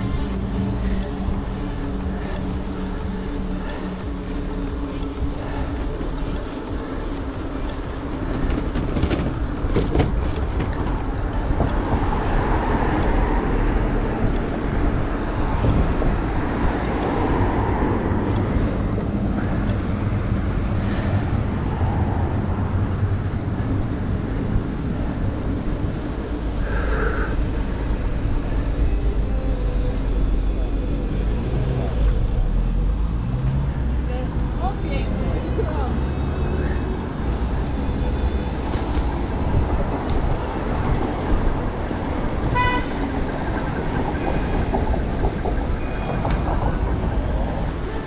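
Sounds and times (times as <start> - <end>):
sharp ticks: 0.0 - 21.8
wind rumbling on microphone: 0.0 - 35.9
tyre and road noise: 0.0 - 48.0.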